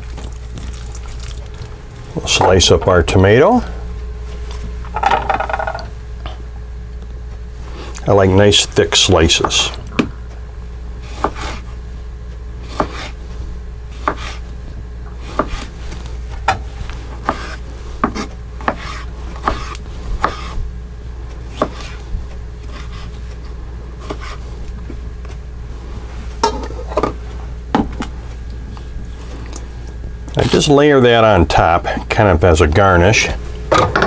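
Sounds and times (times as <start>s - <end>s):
steady low hum: 0.0s - 34.0s
knife slicing a tomato: 12.6s - 13.2s, 13.9s - 14.4s, 17.2s - 20.6s, 21.5s - 22.0s, 24.0s - 24.4s.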